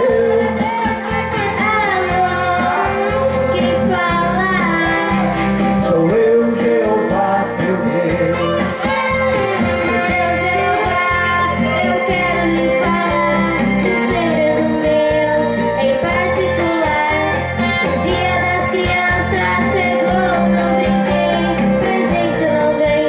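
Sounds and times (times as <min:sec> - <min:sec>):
man singing: 0:00.0 - 0:00.5, 0:05.6 - 0:08.8
girl singing: 0:00.0 - 0:05.4, 0:08.4 - 0:23.0
guitar accompaniment: 0:00.0 - 0:23.0.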